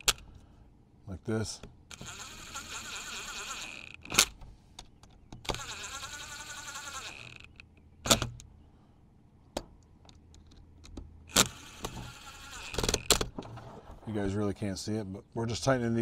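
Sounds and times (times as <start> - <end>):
cordless driver whirring: 1.9 - 4.4, 5.4 - 8.4, 11.3 - 13.2
tool clicking on screws: 1.9 - 4.4, 5.4 - 8.5.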